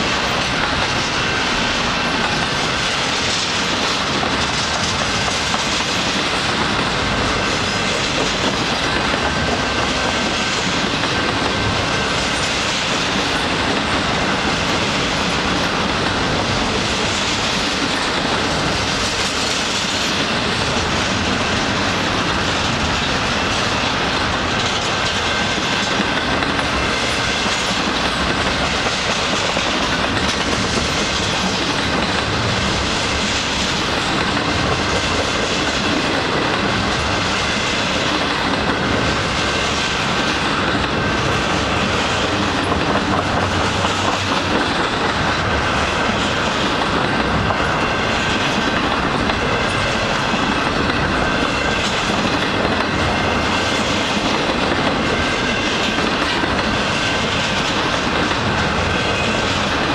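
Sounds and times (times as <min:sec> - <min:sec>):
train wheels on rails: 0:00.0 - 0:59.9.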